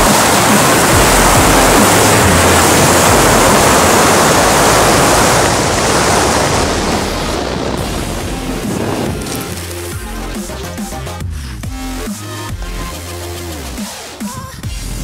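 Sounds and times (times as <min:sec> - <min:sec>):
wind rushing over microphone: 0:00.0 - 0:10.7.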